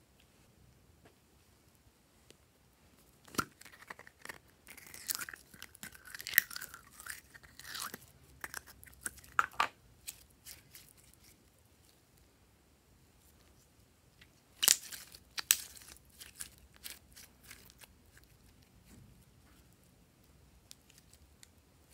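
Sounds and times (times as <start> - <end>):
slime crackling and popping: 14.6 - 17.9.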